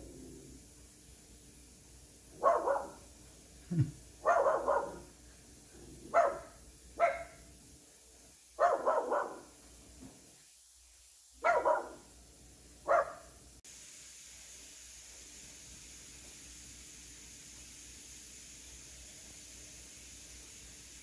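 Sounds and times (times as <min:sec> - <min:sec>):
dog barking: 0:02.4 - 0:03.0, 0:04.2 - 0:05.1, 0:06.1 - 0:07.5, 0:08.6 - 0:09.5, 0:11.4 - 0:12.1, 0:12.8 - 0:13.4.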